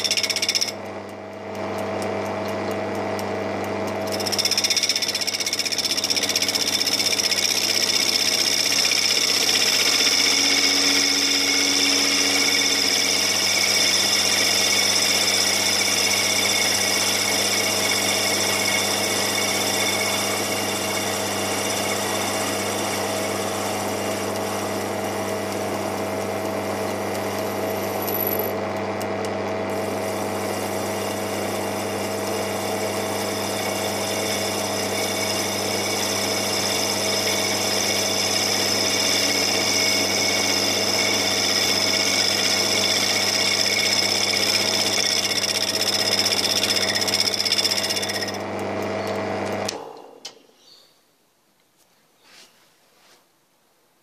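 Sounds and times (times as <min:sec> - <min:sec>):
lathe motor hum and whine: 0:01.5 - 0:49.8
cutting tool hiss: 0:04.1 - 0:25.6, 0:29.7 - 0:48.3.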